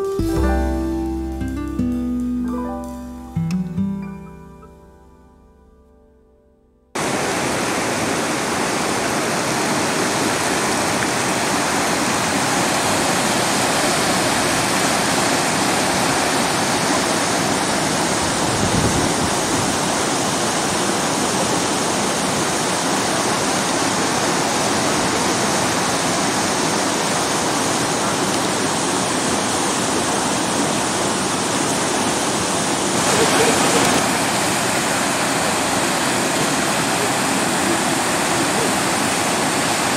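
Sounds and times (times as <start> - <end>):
river rapids rushing: 7.0 - 39.9.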